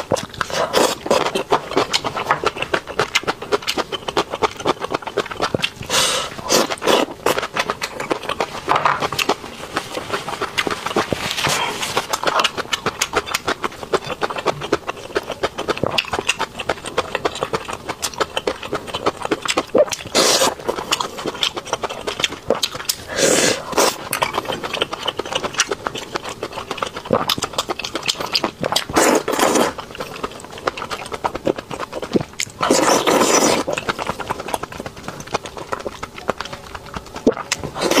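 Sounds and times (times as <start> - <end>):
wet chewing and lip smacking: 0.0 - 38.0
loud slurps: 5.8 - 7.4, 19.8 - 20.7, 23.0 - 24.0, 28.8 - 29.8, 32.6 - 33.9, 37.3 - 38.0.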